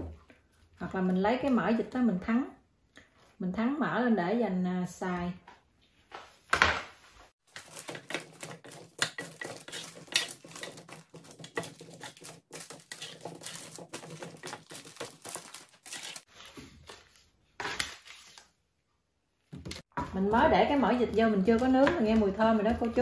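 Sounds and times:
baking paper crinkling: 7.4 - 18.5
spatula scraping baking tray: 7.5 - 16.3.

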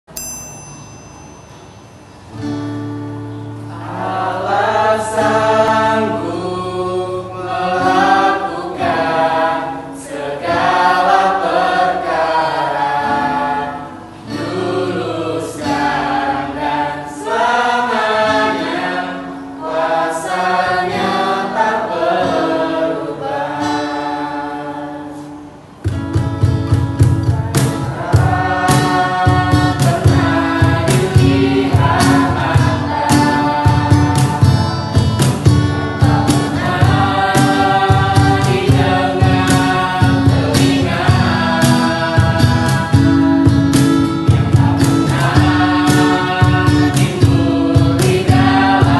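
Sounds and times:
acoustic guitar: 1.2 - 48.9
group singing in chorus: 2.2 - 48.9
cajon beat: 25.7 - 48.9.

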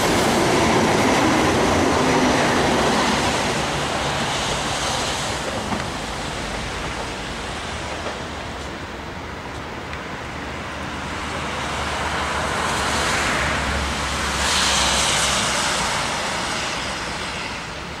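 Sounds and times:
high-speed train passing: 0.0 - 18.0.

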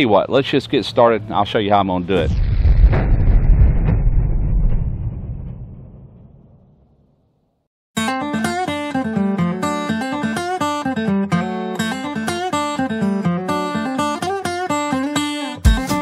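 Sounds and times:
acoustic guitar plucking: 8.0 - 16.0.

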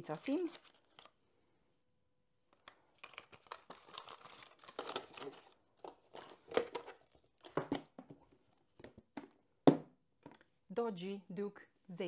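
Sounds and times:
cardboard and paper rustling: 2.5 - 9.0.

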